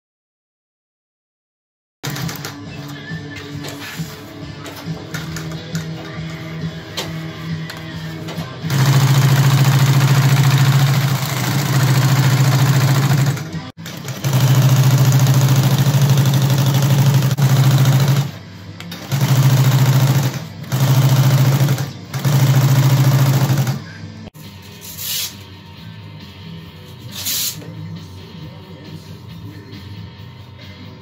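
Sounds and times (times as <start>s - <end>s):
sewing machine stitching: 8.7s - 18.4s, 19.0s - 23.8s.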